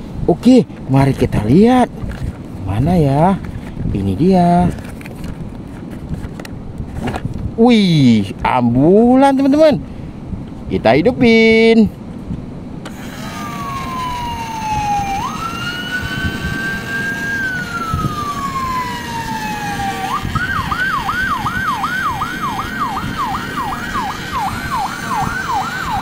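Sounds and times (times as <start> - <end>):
toy ambulance siren: 12.9 - 26.0.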